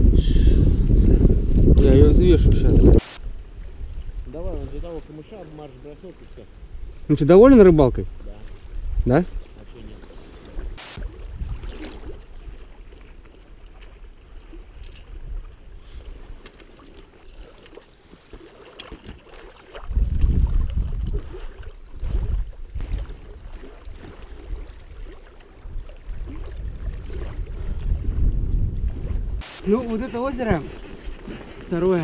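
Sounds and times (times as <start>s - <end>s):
low rumbling: 0.0s - 4.5s
oar strokes: 8.1s - 28.2s, 28.8s - 32.0s
water sloshing against raft: 8.2s - 32.0s.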